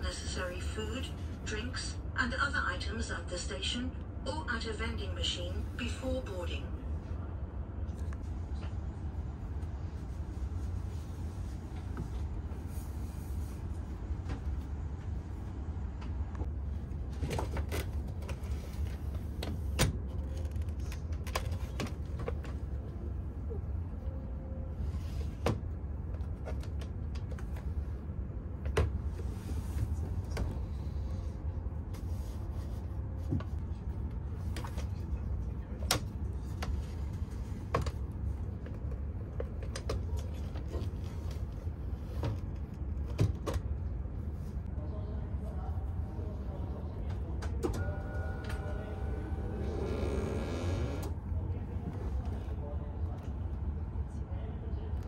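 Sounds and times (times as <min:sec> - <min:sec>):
train rumble: 0:00.0 - 0:53.8.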